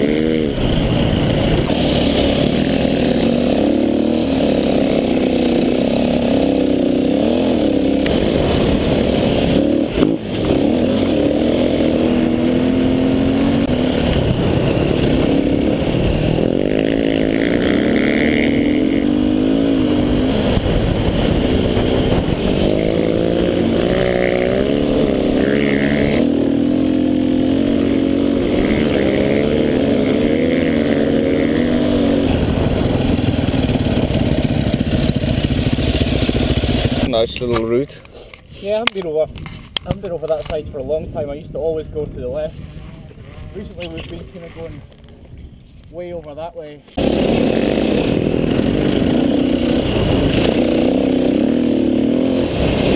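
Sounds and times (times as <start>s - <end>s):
dirt bike engine revving: 0.0s - 37.3s, 46.9s - 52.9s.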